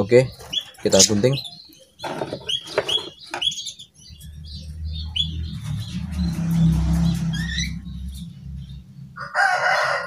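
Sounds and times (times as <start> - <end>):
canaries chirping: 0.0 - 10.0
low rumble: 4.0 - 9.4.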